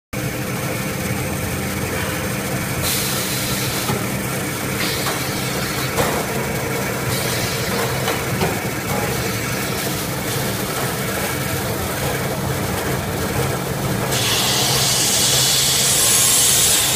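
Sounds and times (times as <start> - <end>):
machine hum: 0.2 - 16.9
machine hiss: 1.9 - 8.4, 14.1 - 16.9.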